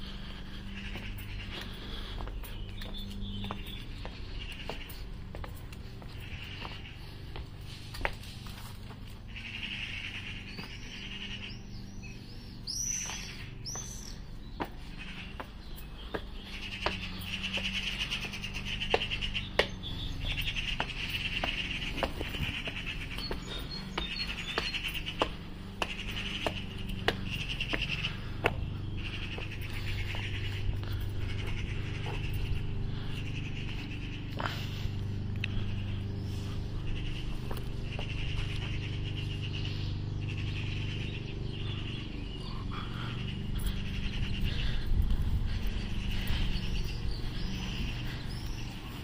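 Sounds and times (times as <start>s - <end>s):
footsteps walking: 0.0s - 9.4s, 12.6s - 39.1s
bird chirps: 0.0s - 49.0s
cicadas buzzing: 0.0s - 49.0s
steady low hum: 0.0s - 49.0s
wind rumble on microphone: 43.6s - 49.0s.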